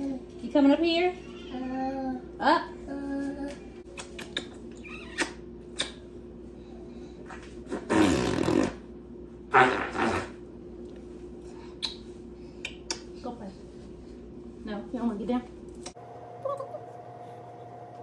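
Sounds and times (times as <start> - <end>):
kiss smacks: 3.9 - 6.0, 11.8 - 13.1.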